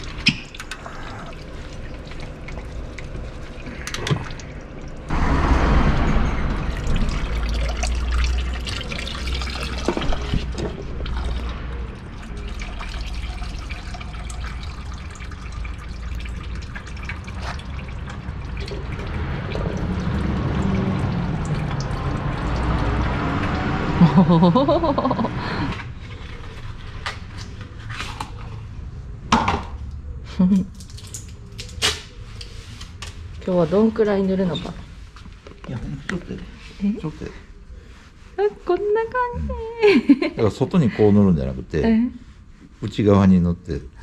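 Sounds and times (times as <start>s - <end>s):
oil trickling into drain pan: 6.7s - 23.6s.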